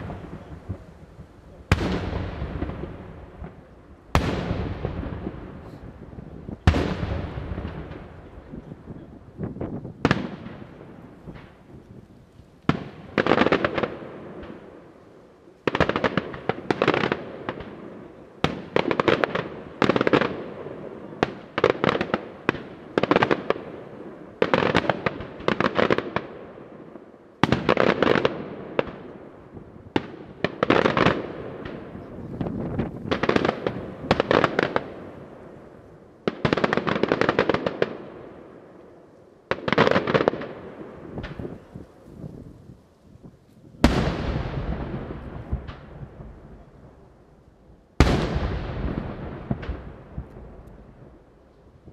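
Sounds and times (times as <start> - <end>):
crackling firework pops: 0.0 - 14.7, 39.5 - 46.9, 48.0 - 51.9
firework shells bursting with bangs: 1.6 - 6.0.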